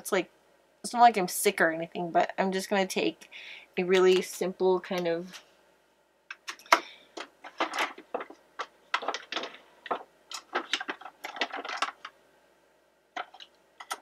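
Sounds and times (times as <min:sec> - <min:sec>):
plastic makeup cases rattling: 0:06.3 - 0:12.1, 0:13.2 - 0:14.0.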